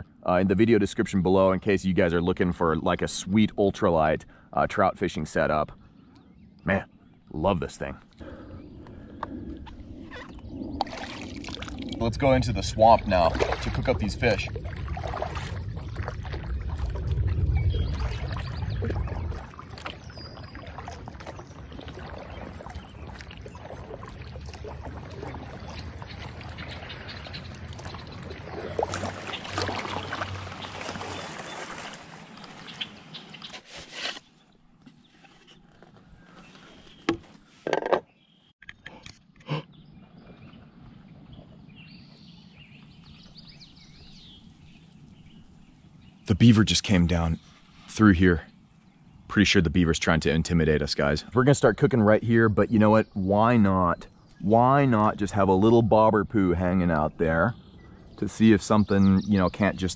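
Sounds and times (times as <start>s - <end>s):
heavy low rumble: 8.2s - 19.6s
water dripping: 8.8s - 32.9s
paddle splashing in water: 9.6s - 34.2s.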